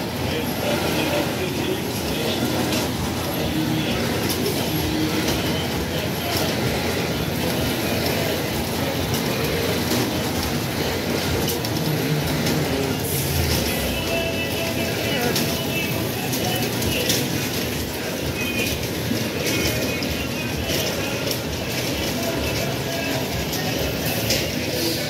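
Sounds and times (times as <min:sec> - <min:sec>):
kiddie ride rumbling and clattering: 0:00.0 - 0:25.0.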